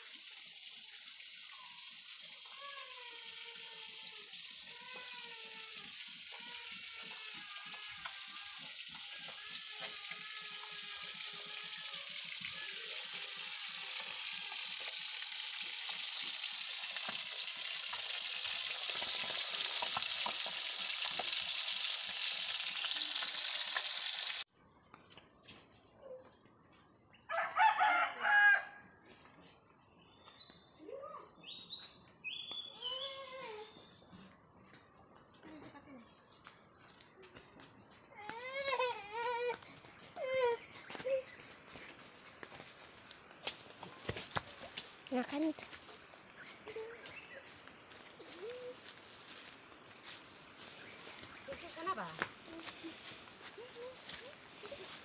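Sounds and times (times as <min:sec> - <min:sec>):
food sizzling in a wok: 0:00.0 - 0:24.5
wood fire crackling: 0:13.8 - 0:24.4
rooster crowing: 0:27.3 - 0:28.9.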